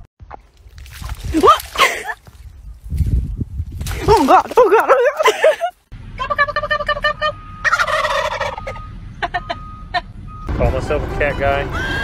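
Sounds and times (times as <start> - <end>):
wild turkeys gobbling: 6.9 - 9.4.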